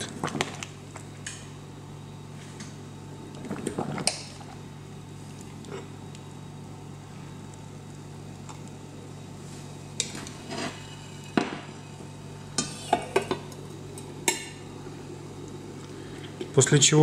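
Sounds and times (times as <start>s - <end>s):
low hum: 0.0s - 16.9s.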